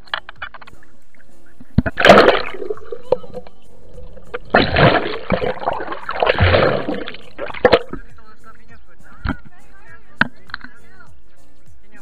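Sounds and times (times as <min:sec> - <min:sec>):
muffled underwater splashing: 0:00.7 - 0:08.2.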